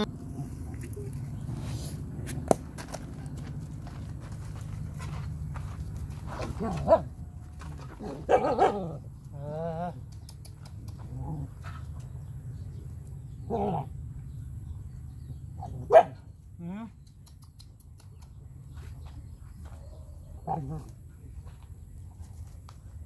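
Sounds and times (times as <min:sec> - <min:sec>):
low hum: 0:00.0 - 0:23.0
dogs barking and growling: 0:06.3 - 0:10.2, 0:10.8 - 0:12.0, 0:13.4 - 0:14.2, 0:15.5 - 0:17.0, 0:19.9 - 0:21.1.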